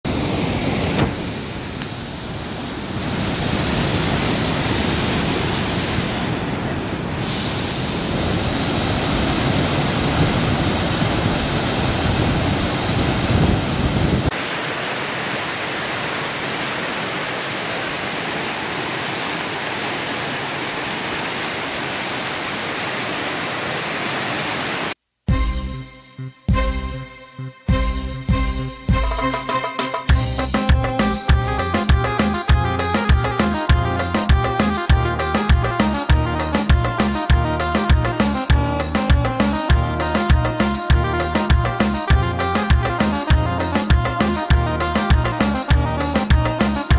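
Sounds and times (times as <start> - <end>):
waterfall: 0.0 - 25.0
rushing river water: 0.1 - 25.0
music: 25.3 - 46.9.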